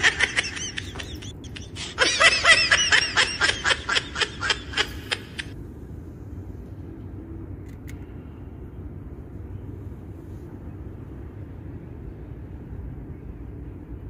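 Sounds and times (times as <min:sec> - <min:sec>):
high-pitched laughter: 0:00.0 - 0:05.6.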